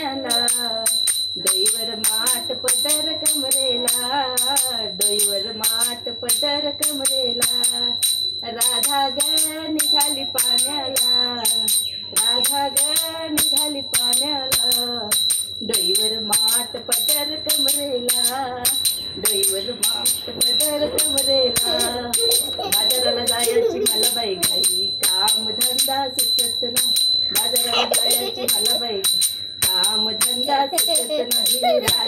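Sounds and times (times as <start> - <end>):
person singing devotional song: 0.0 - 32.0
jingling metallic beat: 8.6 - 32.0.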